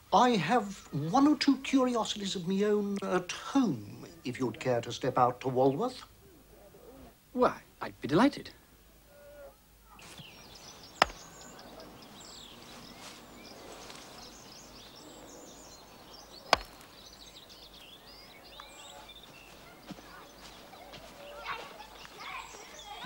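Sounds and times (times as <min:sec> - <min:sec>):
small birds chirping: 0:00.0 - 0:23.0
croquet mallet striking ball: 0:11.0 - 0:11.3, 0:16.5 - 0:16.9.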